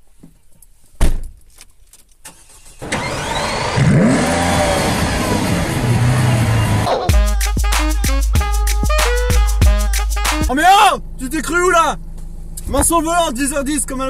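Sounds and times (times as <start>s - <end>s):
car engine starting and idling: 2.2s - 7.3s, 10.5s - 14.0s.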